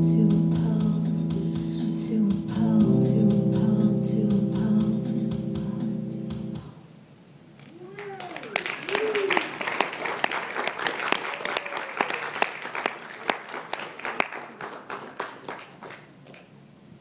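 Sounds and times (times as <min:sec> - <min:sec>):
audience applauding: 0:07.9 - 0:16.5.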